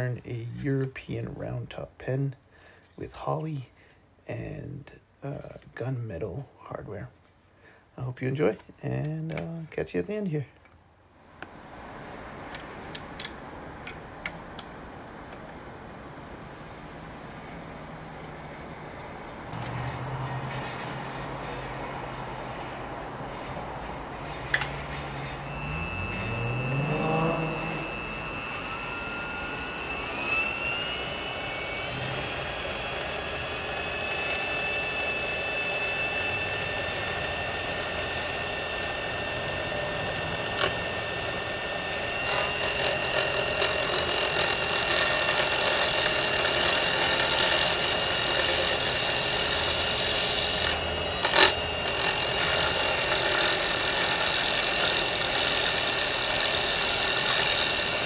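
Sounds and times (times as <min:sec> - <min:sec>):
wood lathe motor whine: 0:24.6 - 0:58.0
turning tool hissing scrape: 0:42.2 - 0:58.0.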